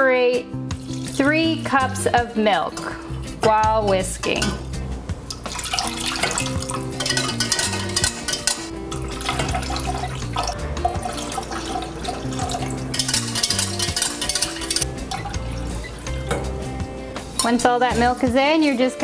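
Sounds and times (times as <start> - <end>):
background music: 0.0 - 19.0
milk pouring and whisking: 5.3 - 16.4.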